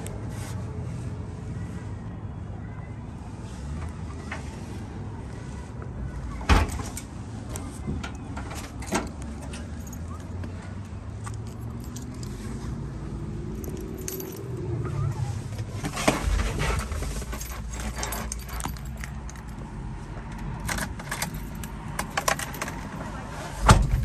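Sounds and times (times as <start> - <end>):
keys jangling: 11.2 - 12.6, 13.4 - 14.6, 16.2 - 23.0
key clicking into ignition: 17.6 - 19.6
thump: 23.7 - 24.0.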